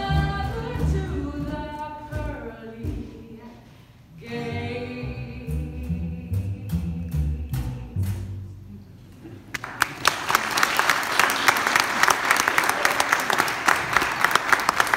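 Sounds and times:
upright bass and acoustic guitar: 4.2s - 9.0s
audience applause: 9.5s - 14.9s.

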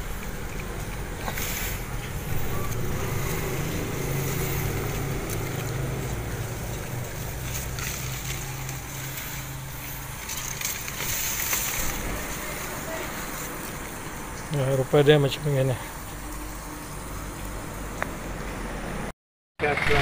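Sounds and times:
low wavering hum: 0.0s - 14.6s
grass and leaves rustling: 0.0s - 18.3s.

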